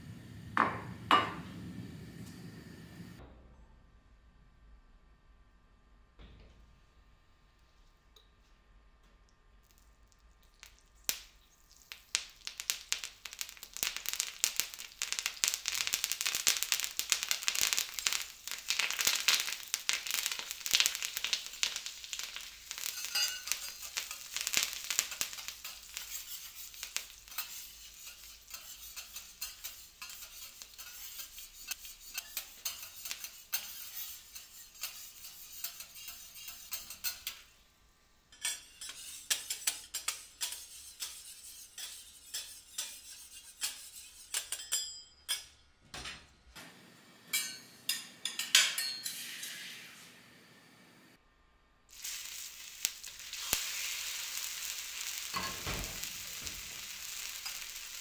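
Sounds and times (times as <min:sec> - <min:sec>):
food sizzling on a griddle: 0:10.6 - 0:37.6, 0:38.4 - 0:44.5, 0:49.1 - 0:50.1, 0:51.9 - 0:58.0.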